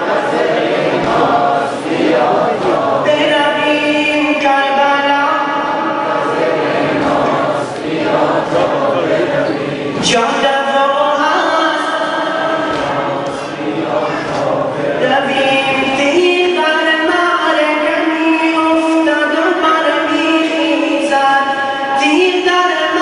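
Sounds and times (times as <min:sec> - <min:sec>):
men chanting in unison: 0:00.0 - 0:03.1, 0:05.8 - 0:10.4, 0:12.0 - 0:16.0
sharp slap: 0:00.9 - 0:03.0, 0:12.5 - 0:13.7.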